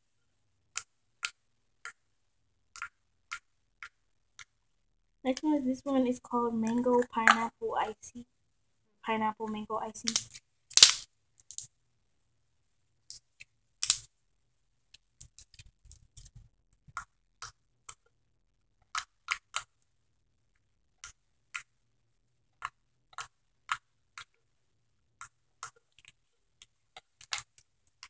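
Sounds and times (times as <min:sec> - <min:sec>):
slime clicks and pops: 0:10.1 - 0:11.0, 0:13.8 - 0:14.1.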